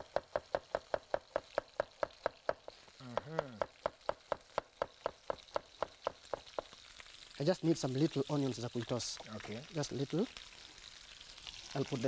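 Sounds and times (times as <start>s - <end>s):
knife slicing onion on board: 0.0s - 6.7s.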